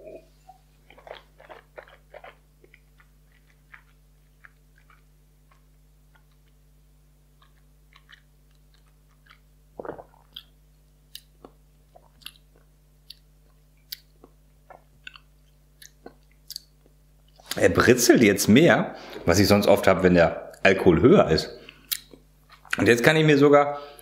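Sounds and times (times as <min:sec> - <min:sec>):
wet mouth clicks and smacks: 0:07.4 - 0:17.6, 0:21.6 - 0:22.8.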